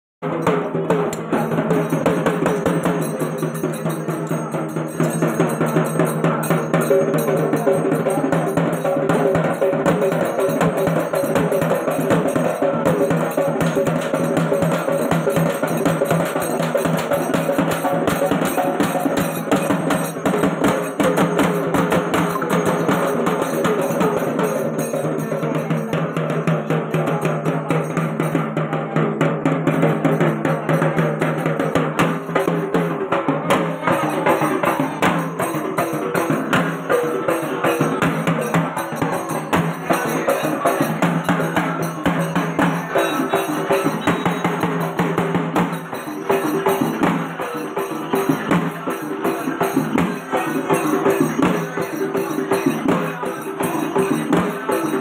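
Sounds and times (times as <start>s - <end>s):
drum band playing fast rhythm: 0.2s - 55.0s.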